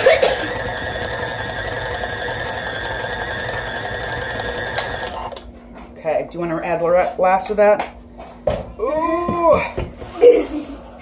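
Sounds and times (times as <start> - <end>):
stand mixer motor whining: 0.0 - 5.4.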